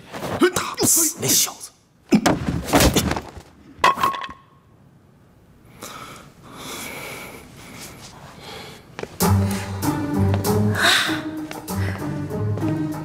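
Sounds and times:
background music: 9.2s - 13.0s.

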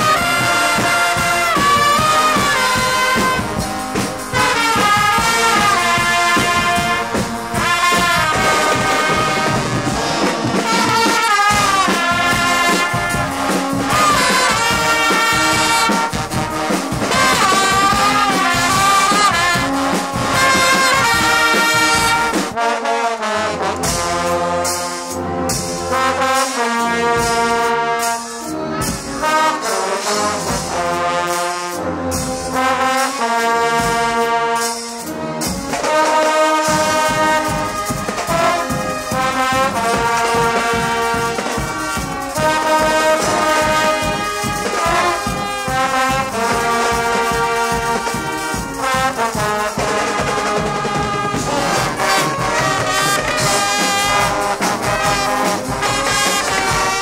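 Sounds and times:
brass band playing loudly: 0.0s - 57.0s.

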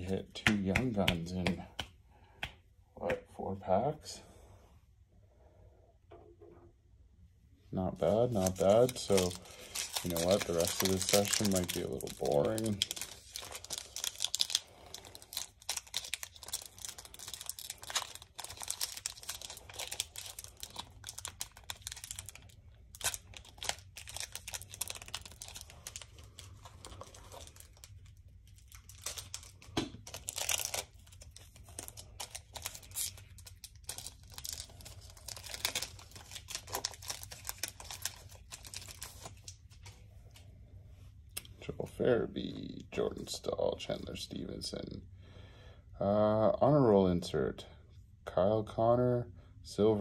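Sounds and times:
cards rustling: 7.9s - 40.4s
wrappers crinkling and tearing: 8.0s - 40.4s.

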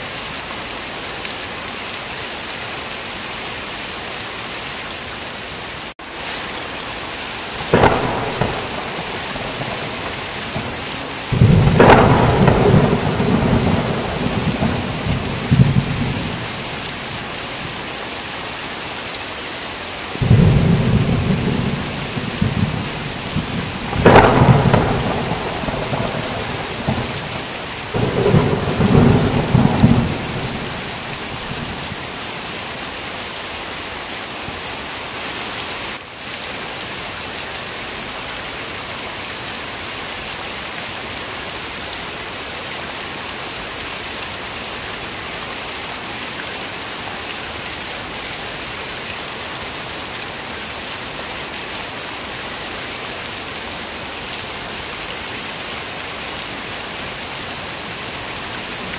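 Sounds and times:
heavy rain: 0.0s - 58.9s
thunder cracking and rolling: 7.6s - 17.2s, 20.2s - 32.2s.

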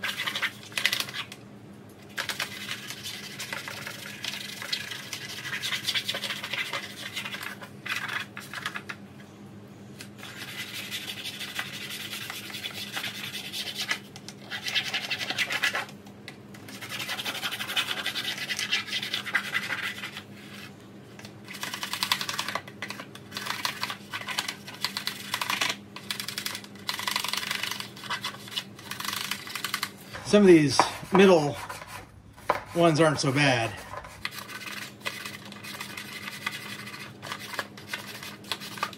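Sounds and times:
hand scrubbing strokes: 29.1s - 37.0s.

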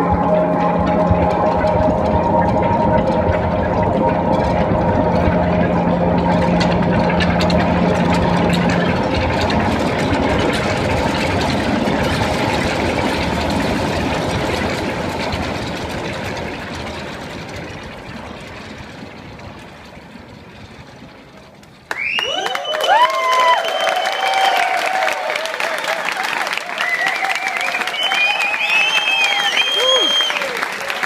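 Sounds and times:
held low tone: 0.0s - 21.2s
noisy electronic drone: 0.0s - 21.9s.

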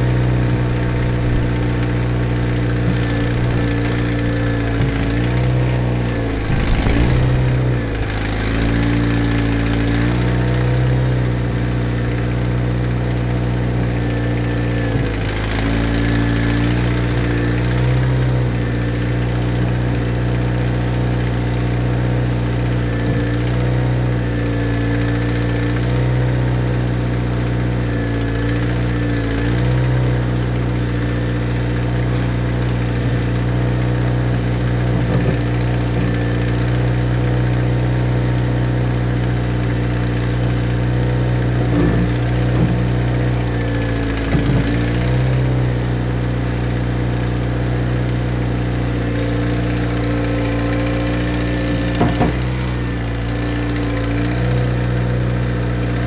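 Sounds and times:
loader engine running: 0.0s - 56.0s.

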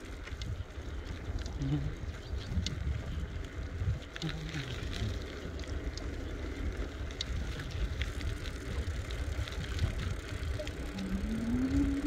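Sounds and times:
wind rumbling on microphone: 0.0s - 12.0s
faint voice: 10.4s - 12.0s.

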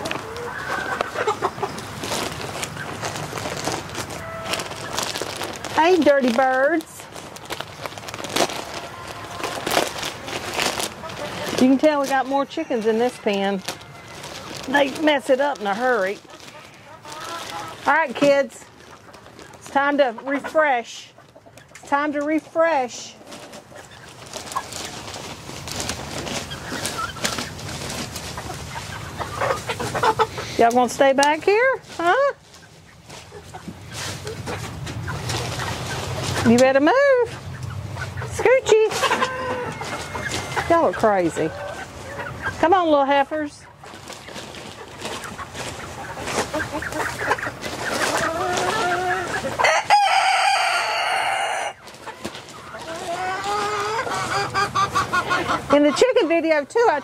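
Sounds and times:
chickens clucking softly: 0.0s - 2.0s, 26.3s - 57.0s
plastic wrapping crinkling: 0.0s - 20.0s, 23.2s - 29.2s, 43.8s - 51.1s, 51.7s - 54.0s
rooster crowing loudly: 49.6s - 51.8s.

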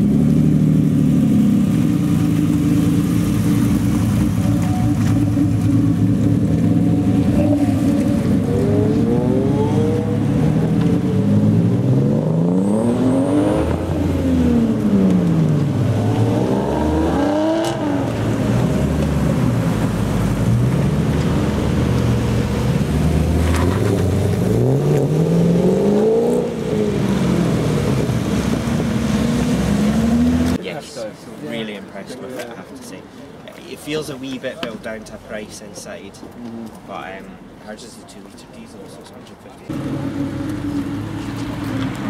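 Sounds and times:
car engine revving: 0.0s - 30.6s, 39.7s - 42.0s
sports car engines idling: 0.1s - 9.0s.

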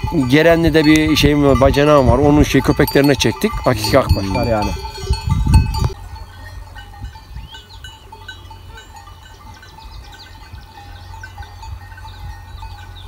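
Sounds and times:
sheep bells tinkling: 0.0s - 13.0s
small birds chirping: 4.5s - 13.0s.

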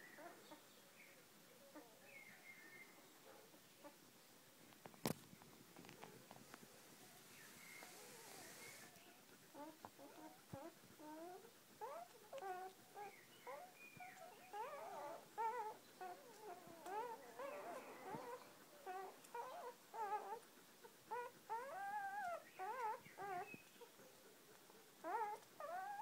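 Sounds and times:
puppies squeaking and whimpering: 9.5s - 20.4s, 21.1s - 23.9s, 25.0s - 26.0s.

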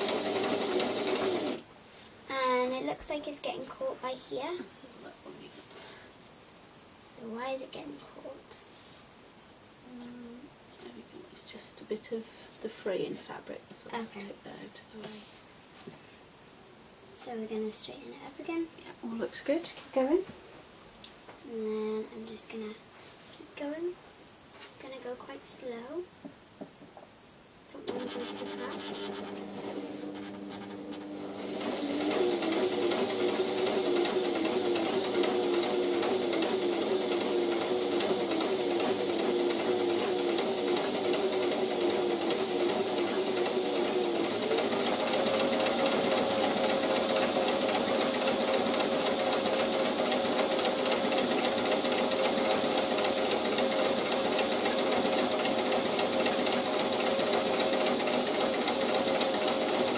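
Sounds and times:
sewing machine running: 0.0s - 1.6s, 27.8s - 59.9s.

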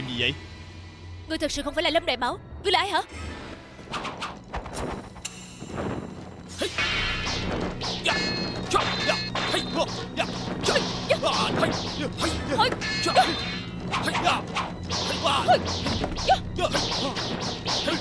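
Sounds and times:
background music: 0.0s - 18.0s
metallic sword clangs: 6.6s - 13.7s.

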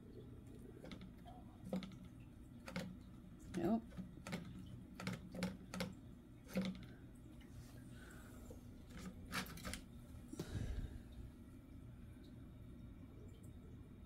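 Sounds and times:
low steady hum: 0.0s - 14.0s
clicks and knocks in aquarium: 0.6s - 7.0s.

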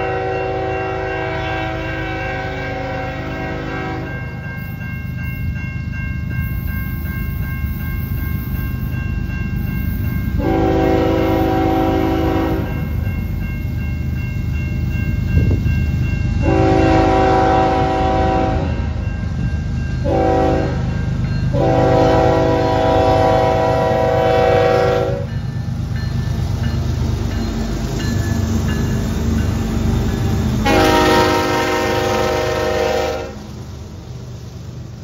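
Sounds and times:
locomotive air horn blasts: 0.0s - 4.2s, 10.4s - 12.8s, 16.4s - 18.8s, 20.0s - 20.9s, 21.5s - 25.3s, 30.6s - 33.5s.

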